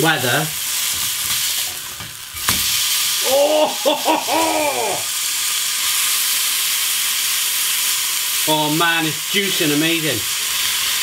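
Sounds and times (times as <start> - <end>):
burger patty sizzling: 0.0 - 11.0
person humming: 3.2 - 5.1.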